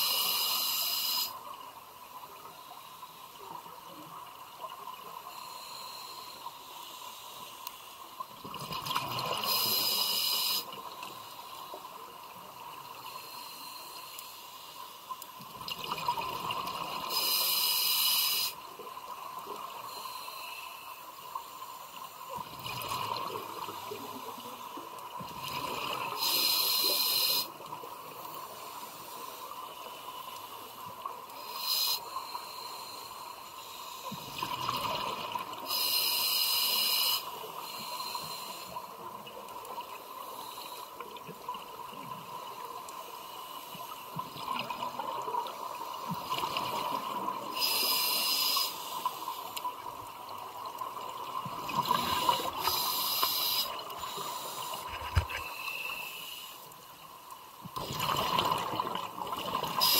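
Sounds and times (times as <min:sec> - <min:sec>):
diver inhaling through regulator: 0:52.0 - 0:56.6
rush of exhaled bubbles: 0:57.8 - 0:59.9.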